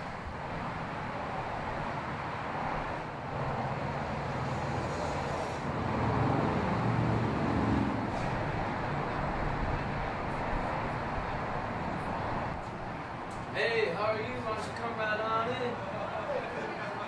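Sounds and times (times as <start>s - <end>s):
vehicle engine hum: 0.0s - 13.6s
road and wind noise: 0.0s - 17.0s.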